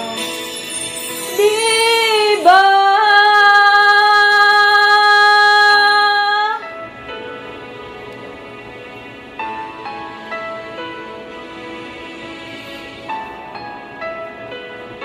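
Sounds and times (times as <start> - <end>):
woman singing a ballad: 0.0 - 6.7
instrumental backing track: 0.0 - 15.0.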